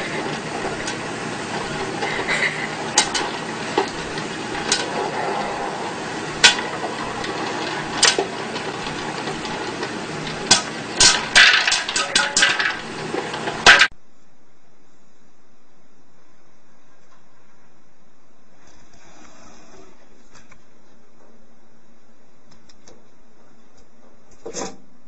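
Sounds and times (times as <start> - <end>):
popcorn popper running: 0.0 - 13.9
popcorn kernels popping: 0.0 - 14.0.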